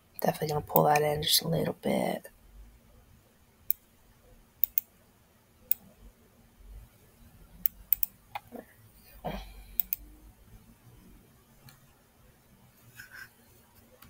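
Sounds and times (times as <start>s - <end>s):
computer mouse clicking: 4.6s - 4.9s, 7.6s - 8.5s, 9.8s - 10.1s.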